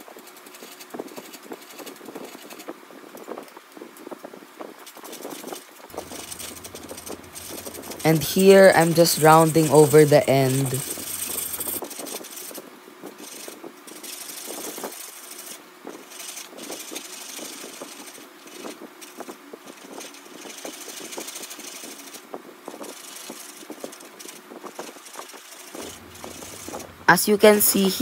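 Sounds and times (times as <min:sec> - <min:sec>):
chisel scraping spinning wood: 0:05.9 - 0:12.5, 0:13.2 - 0:19.2, 0:22.8 - 0:27.9.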